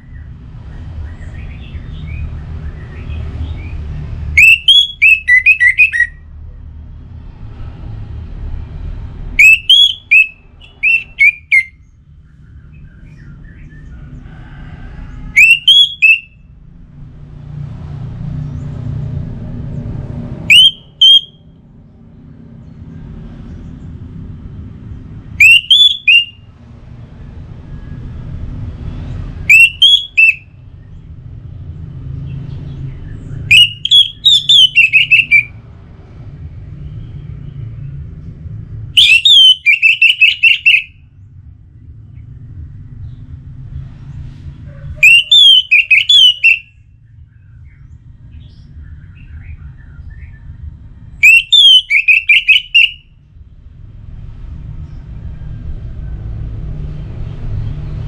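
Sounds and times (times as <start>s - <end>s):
thrush singing whistled phrases: 4.4s - 6.2s, 9.4s - 11.8s, 15.3s - 16.4s, 20.4s - 21.4s, 25.4s - 26.5s, 29.5s - 30.6s, 33.3s - 35.6s, 39.0s - 41.0s, 45.0s - 46.8s, 51.2s - 53.1s.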